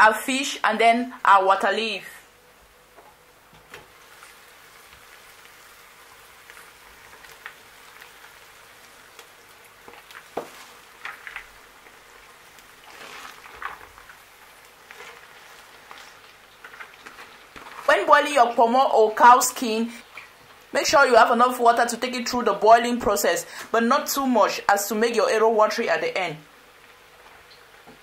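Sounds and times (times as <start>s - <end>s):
simmering pot patter: 2.7s - 28.0s
leaves clicking and rustling: 3.6s - 18.6s.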